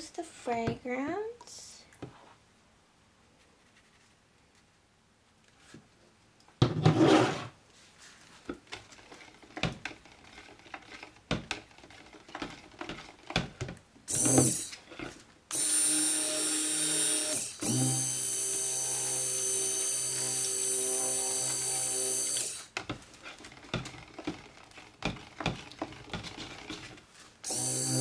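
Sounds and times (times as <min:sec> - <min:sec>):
knocks and stirring in bucket: 0:06.6 - 0:07.6, 0:08.4 - 0:15.3, 0:22.7 - 0:27.4
stick blender motor whining: 0:14.1 - 0:28.0.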